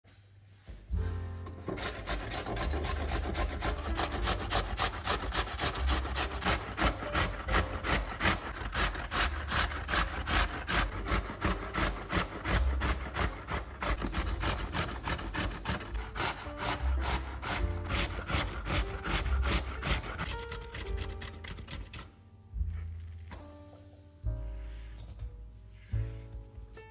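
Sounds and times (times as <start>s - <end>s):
potato rasped on metal grater: 1.7s - 22.1s.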